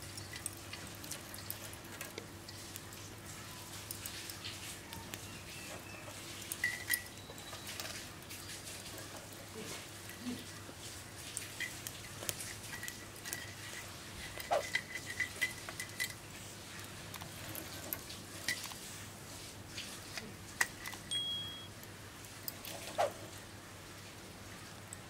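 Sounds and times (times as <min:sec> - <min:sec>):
metal tray and rack clinking: 0:06.4 - 0:08.0, 0:11.4 - 0:16.2.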